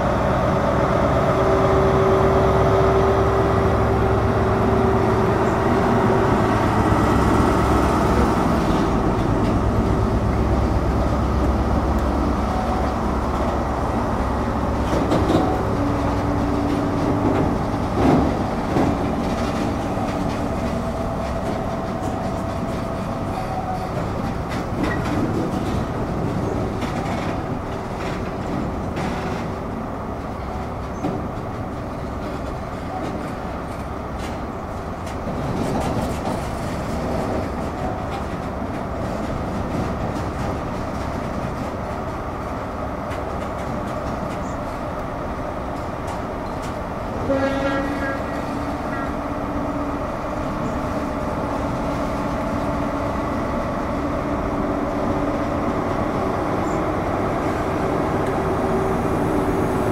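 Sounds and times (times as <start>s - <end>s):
diesel train engine running: 0.0s - 59.9s
train wheels clicking over rail joints: 13.0s - 49.7s
train horn note: 47.2s - 49.2s.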